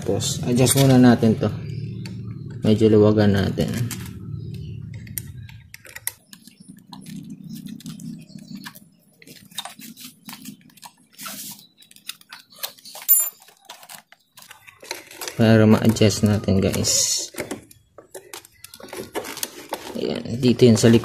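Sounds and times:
small metallic clicks and scrapes: 4.9 - 20.0.

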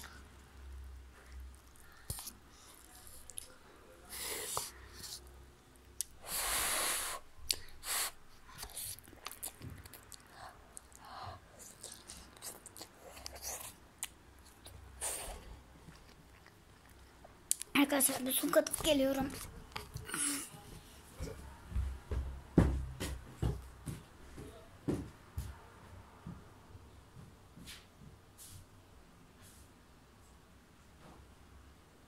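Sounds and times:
child chewing noodles: 0.0 - 20.6.

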